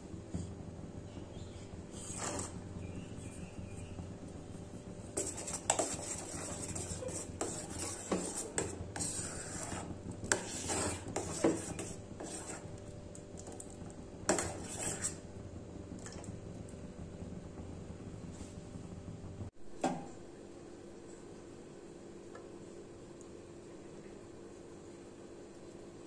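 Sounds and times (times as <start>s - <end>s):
metal spoon scraping saucepan: 5.2s - 12.7s, 14.3s - 15.2s.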